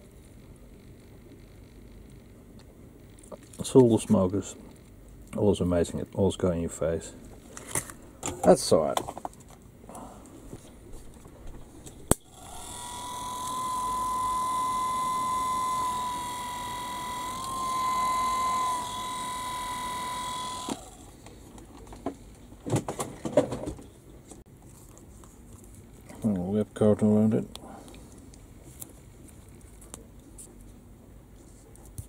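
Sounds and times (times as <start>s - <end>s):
electric motor whine: 11.8s - 21.2s
motor switch click: 12.1s - 20.9s.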